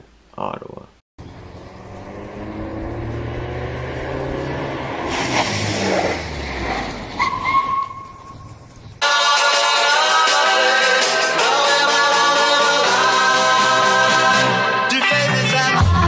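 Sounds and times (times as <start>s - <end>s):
engine running: 1.2s - 7.2s.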